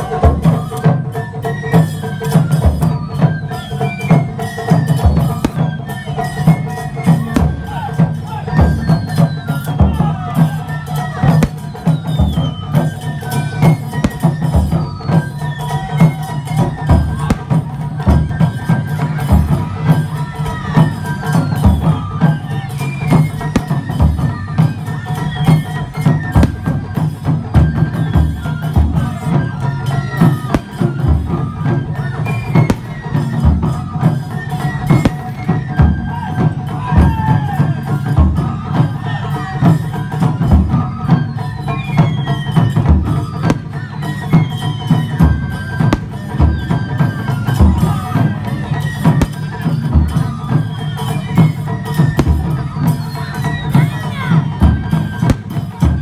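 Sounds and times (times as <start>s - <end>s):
melody above drums: 4.4s - 9.2s, 10.4s - 20.8s, 21.5s - 36.1s, 42.8s - 56.0s
deep drum strikes: 55.2s - 55.8s.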